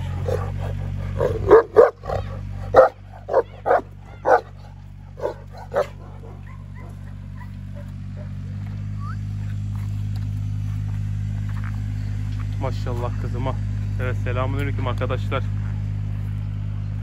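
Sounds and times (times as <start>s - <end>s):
large dog barking: 0.0s - 8.5s
steady low rumble: 0.0s - 17.0s.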